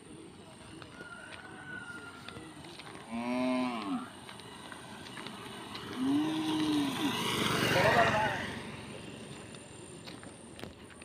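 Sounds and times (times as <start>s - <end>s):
cow mooing: 3.1s - 4.1s, 6.0s - 7.0s.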